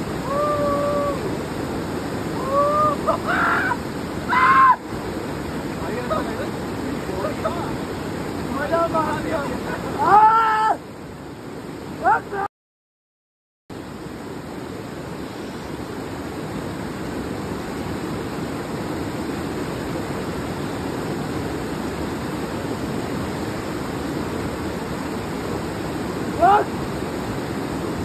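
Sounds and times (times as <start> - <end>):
river rushing over rocks: 0.0 - 12.5, 13.8 - 28.0
person's rising cry: 0.2 - 1.3, 2.4 - 4.8.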